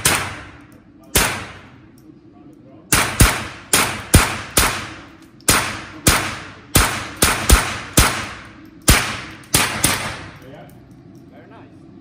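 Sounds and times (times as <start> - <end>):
indoor gunshots: 0.0 - 1.9, 2.9 - 10.4.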